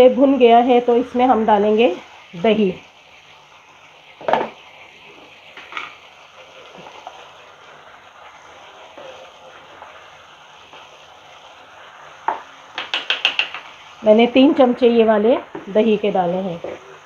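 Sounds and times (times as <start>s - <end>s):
sizzling in a frying pan: 0.0s - 17.0s
spoon knocking on pan: 4.2s - 4.5s, 12.3s - 13.7s.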